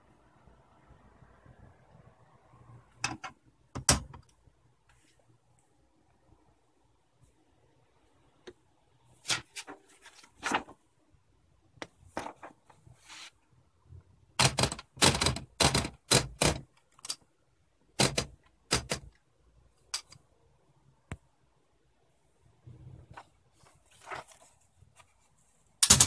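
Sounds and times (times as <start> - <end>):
typewriter clacking: 14.4 - 17.2, 18.0 - 19.1.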